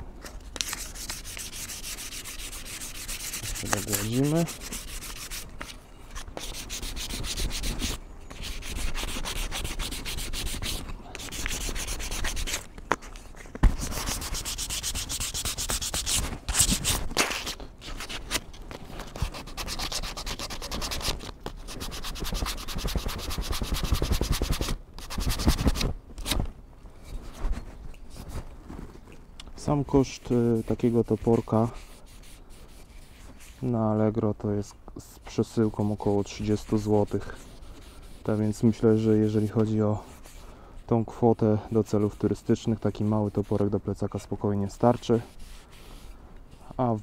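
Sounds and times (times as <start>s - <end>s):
sandpaper rubbing on wood: 0.6s - 5.7s, 6.4s - 12.7s, 13.7s - 18.2s, 19.1s - 25.8s, 29.8s - 33.6s, 35.7s - 40.4s, 41.8s - 46.8s.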